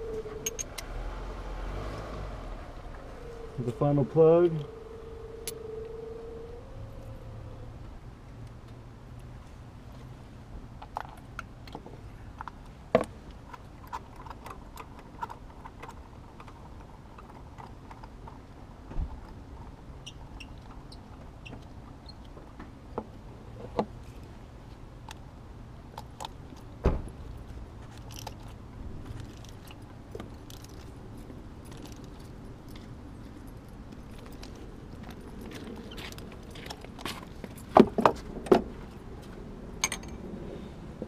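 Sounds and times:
metal hand tools clinking: 0:39.8 - 0:40.2.

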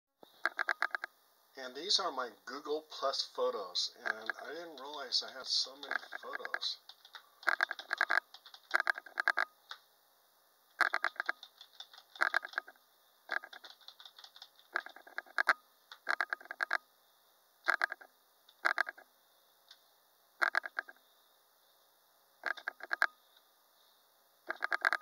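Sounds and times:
mouse scroll wheel clicking: 0:00.4 - 0:01.1, 0:04.0 - 0:04.9, 0:05.8 - 0:09.5, 0:10.8 - 0:16.8, 0:17.7 - 0:19.0, 0:20.4 - 0:21.0, 0:22.4 - 0:23.1, 0:24.5 - 0:25.0.

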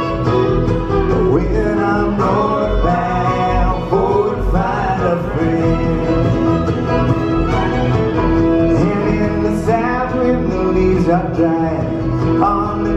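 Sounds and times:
bluegrass band playing: 0:00.0 - 0:12.9.

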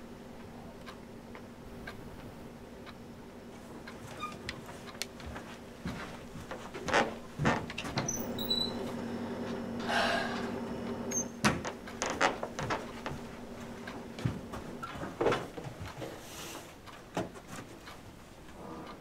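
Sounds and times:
low room hum: 0:00.0 - 0:19.0
short high squeaks: 0:08.0 - 0:08.9, 0:11.1 - 0:11.4.

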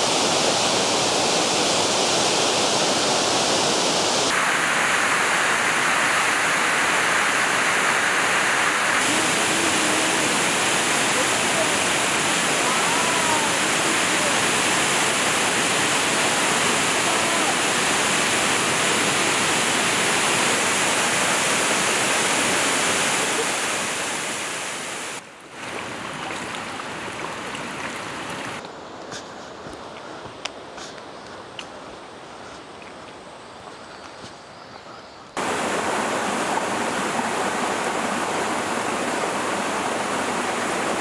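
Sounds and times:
waterfall pouring onto rock: 0:09.0 - 0:23.5.

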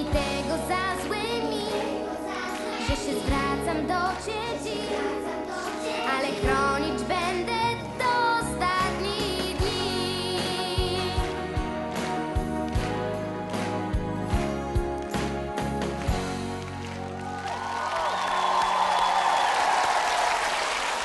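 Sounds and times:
girl singing into a microphone: 0:00.0 - 0:05.2, 0:05.8 - 0:11.2
pop backing music: 0:00.0 - 0:17.3
drum beats: 0:08.8 - 0:16.8.

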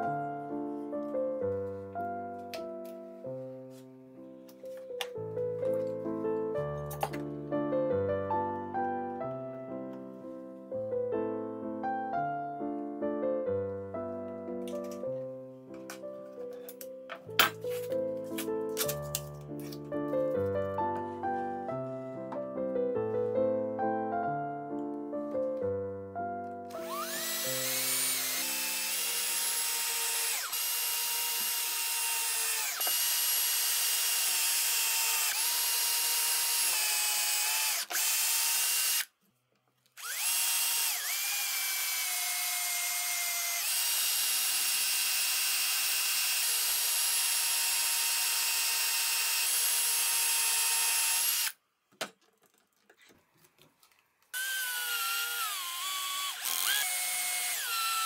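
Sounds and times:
drill driving wood screws: 0:26.7 - 0:39.1, 0:40.0 - 0:51.6, 0:54.4 - 0:58.0
cordless drill boring into wood: 0:26.8 - 0:39.1, 0:40.0 - 0:51.6, 0:54.4 - 0:58.0.

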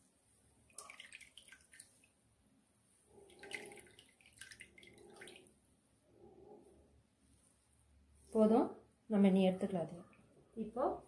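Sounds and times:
liquid dripping into a bowl: 0:00.7 - 0:02.2, 0:03.2 - 0:05.5.

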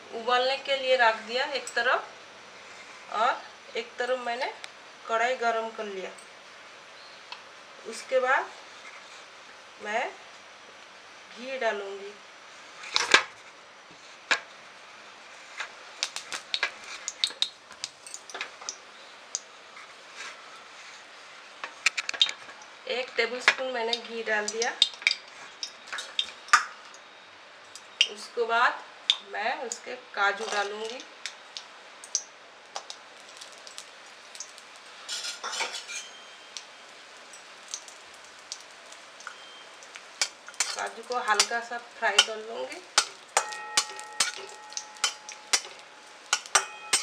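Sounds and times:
faint frying hiss: 0:00.0 - 0:47.0
ghee ticking and popping: 0:15.6 - 0:19.9, 0:21.6 - 0:28.3, 0:29.0 - 0:35.5, 0:36.4 - 0:47.0
steel spoon clicking on pan: 0:39.2 - 0:41.6, 0:42.2 - 0:42.4, 0:43.0 - 0:47.0.

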